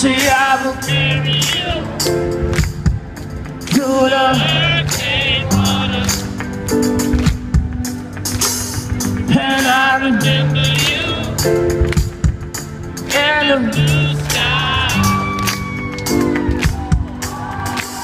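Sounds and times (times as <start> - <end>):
person singing: 9.3 - 11.8, 13.1 - 16.3.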